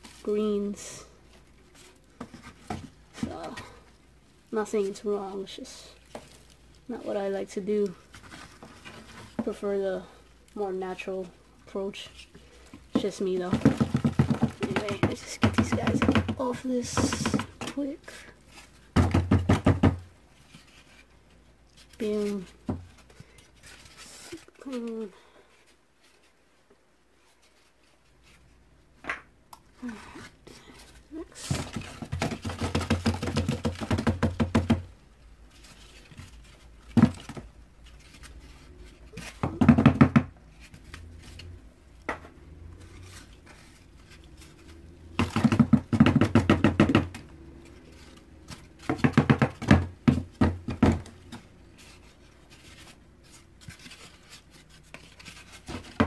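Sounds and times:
cardboard tapping on plastic bin: 0:12.9 - 0:17.8, 0:18.9 - 0:20.0, 0:31.4 - 0:34.9, 0:39.3 - 0:40.3, 0:45.2 - 0:47.2, 0:48.8 - 0:51.2.

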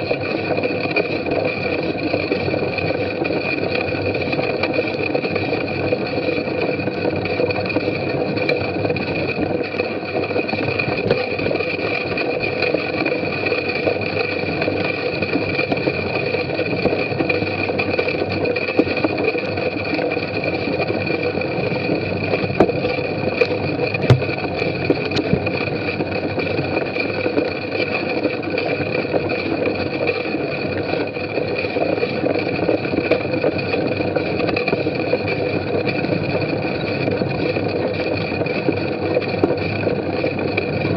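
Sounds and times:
bicycle frame rattle: 0:00.0 - 0:40.9
wind: 0:00.0 - 0:40.9
sharp knocks from bumps: 0:24.1 - 0:24.5.

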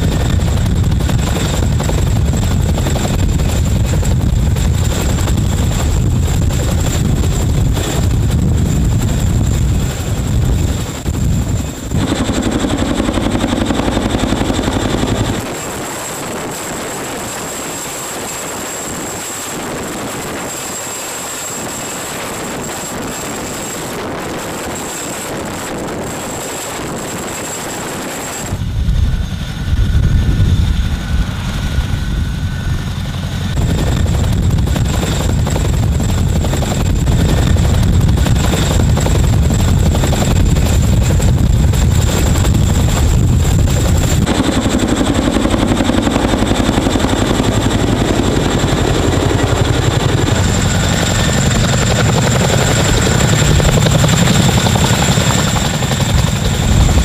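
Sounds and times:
helicopter rotors beating: 0:00.0 - 0:57.0
high turbine whine: 0:00.0 - 0:57.0.

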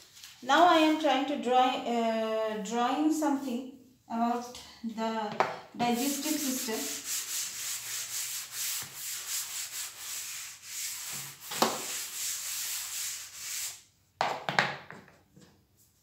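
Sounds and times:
duster rubbing chalkboard: 0:05.8 - 0:13.8.

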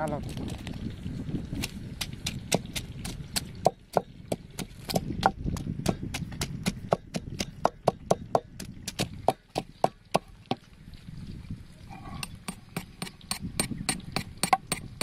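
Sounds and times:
wooden pestle pounding in mortar: 0:01.6 - 0:10.3, 0:12.4 - 0:15.0.

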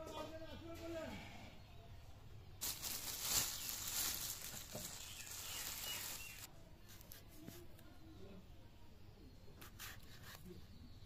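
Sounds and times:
plastic bag crinkling: 0:02.6 - 0:06.5.

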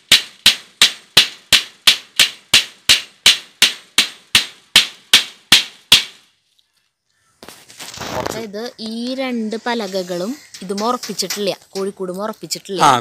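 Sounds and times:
hammer driving nail into wood: 0:00.1 - 0:06.2.

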